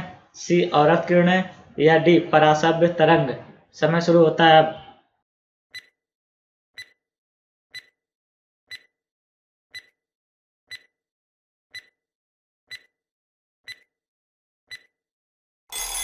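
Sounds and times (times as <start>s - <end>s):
countdown timer ticking: 12.7s - 12.9s, 13.7s - 13.9s, 14.7s - 14.9s.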